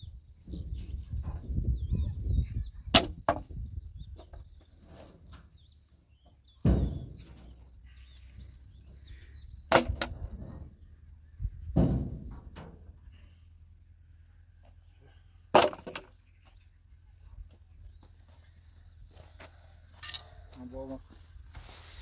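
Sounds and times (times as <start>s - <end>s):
birds chirping: 0.0s - 11.7s, 13.0s - 22.0s
sharp thuds: 6.6s - 7.6s, 9.6s - 10.8s, 11.6s - 12.9s.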